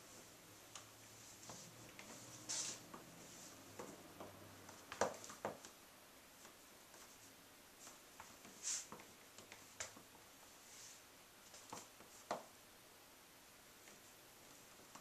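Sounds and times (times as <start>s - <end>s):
heels tapping on tile floor: 3.7s - 5.8s.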